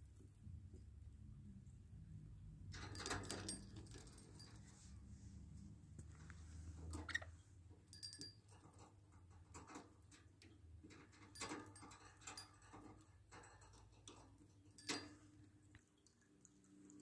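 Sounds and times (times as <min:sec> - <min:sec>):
small bell clinking: 0:02.7 - 0:05.0, 0:07.8 - 0:09.0, 0:10.9 - 0:14.1, 0:14.7 - 0:15.5.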